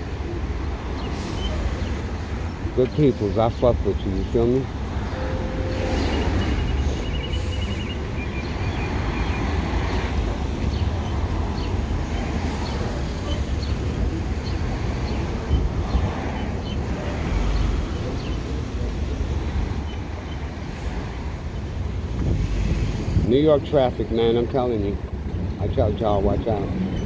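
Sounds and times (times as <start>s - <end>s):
road and traffic noise: 0.0s - 27.0s
wind rumbling over microphone: 20.9s - 23.6s.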